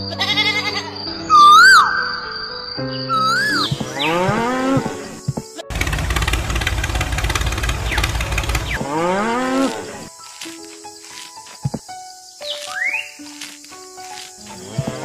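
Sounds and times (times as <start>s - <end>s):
tractor engine running: 5.7s - 8.9s
cow mooing: 8.7s - 10.1s.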